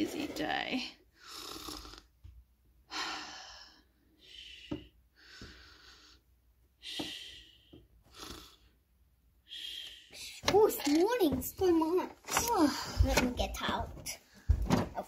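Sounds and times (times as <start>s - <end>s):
person making breathing sounds: 2.9s - 8.8s, 9.4s - 10.4s.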